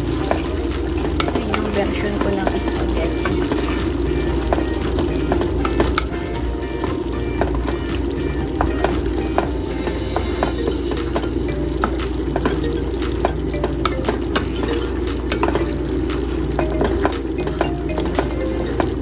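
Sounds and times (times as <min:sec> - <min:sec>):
sauce bubbling and popping: 0:00.0 - 0:19.0.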